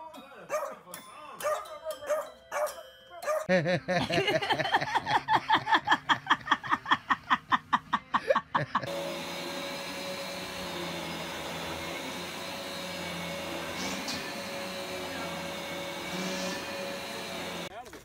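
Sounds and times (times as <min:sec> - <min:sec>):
vacuum cleaner humming: 0:08.8 - 0:17.7.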